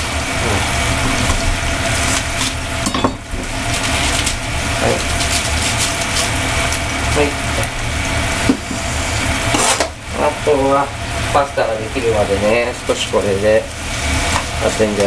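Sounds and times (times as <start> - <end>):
cabbage leaves crunching: 3.6 - 6.9.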